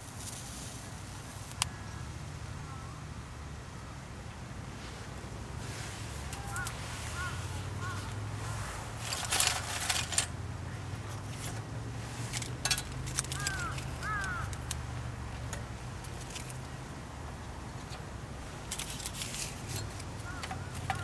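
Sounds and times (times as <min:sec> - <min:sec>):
wooden sticks clattering on metal: 0:06.2 - 0:08.2, 0:08.8 - 0:16.7, 0:17.8 - 0:21.0.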